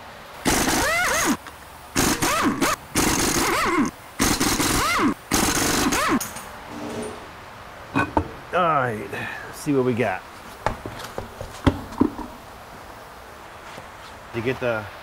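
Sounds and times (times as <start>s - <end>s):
impact wrench hammering and whining: 0.4s - 6.5s.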